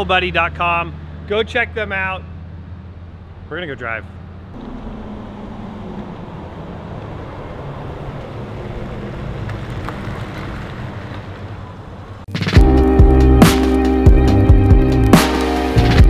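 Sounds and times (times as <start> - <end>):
van driving past: 4.1 - 12.3
loud electronic music: 12.3 - 16.0.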